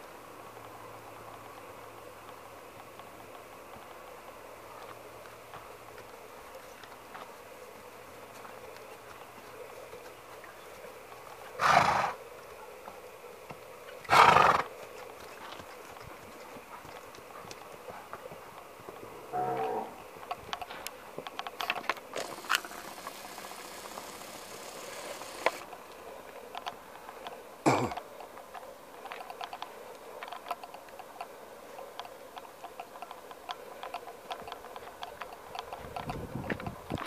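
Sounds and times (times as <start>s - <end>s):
hoofbeats on gravel: 2.2s - 25.8s.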